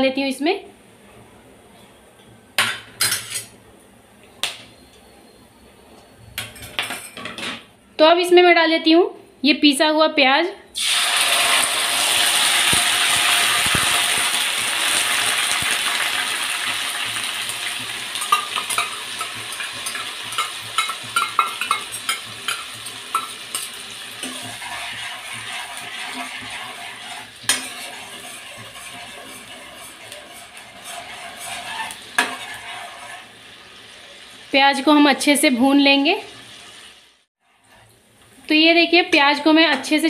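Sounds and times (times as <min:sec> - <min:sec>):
onion paste sizzling in oil: 0:10.8 - 0:40.0
metal spoon knocking against pan: 0:18.2 - 0:23.7.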